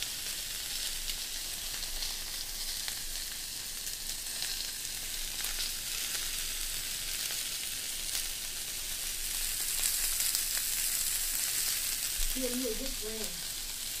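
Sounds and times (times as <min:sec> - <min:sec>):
meat sizzling on a grill: 0:00.0 - 0:14.0
small crackles: 0:00.0 - 0:14.0.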